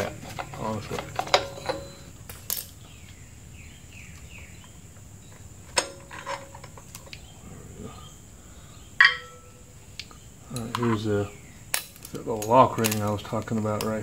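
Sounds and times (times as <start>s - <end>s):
screwdriver clinking on metal hub: 0.4s - 2.6s, 9.0s - 9.5s.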